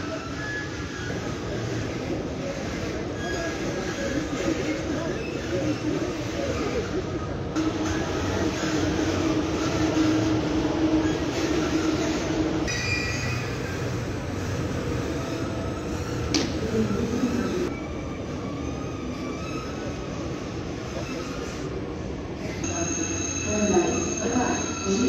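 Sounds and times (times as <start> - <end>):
electric locomotive humming: 0.0 - 25.0
thin high whining tones: 11.0 - 14.1.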